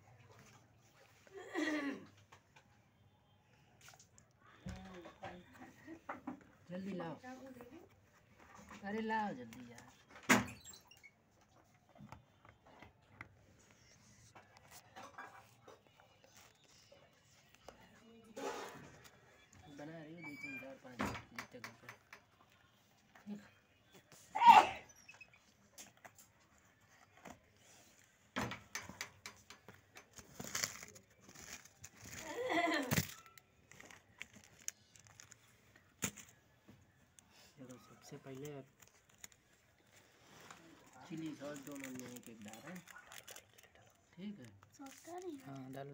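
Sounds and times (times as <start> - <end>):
faint clicks and rustles: 25.2 - 45.9.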